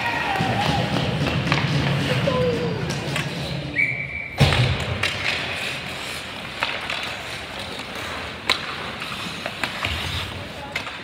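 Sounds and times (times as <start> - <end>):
hockey sticks and puck clacking: 0.0 - 3.8, 4.4 - 11.0.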